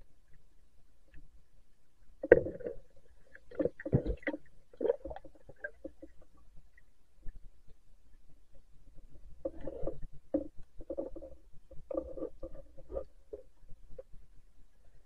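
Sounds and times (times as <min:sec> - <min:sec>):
muffled underwater thumps: 0:03.5 - 0:06.1.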